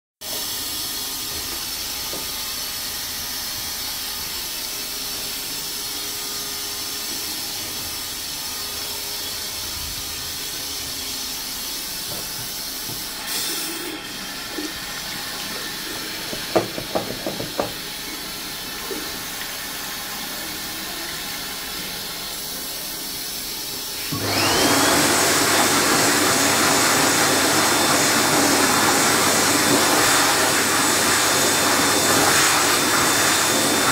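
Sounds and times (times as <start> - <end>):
hand dryer whining: 0.2 - 33.9
toilet cistern refilling: 12.8 - 23.8
tap running: 14.5 - 19.6.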